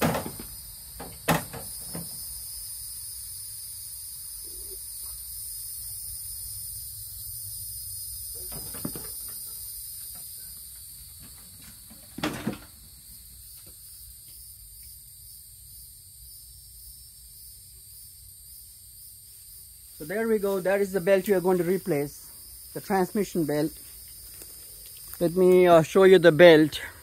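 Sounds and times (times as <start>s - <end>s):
lawnmower clunking and knocking: 0.0s - 2.1s, 8.4s - 9.4s, 11.2s - 12.8s
high insect trill: 0.0s - 27.0s.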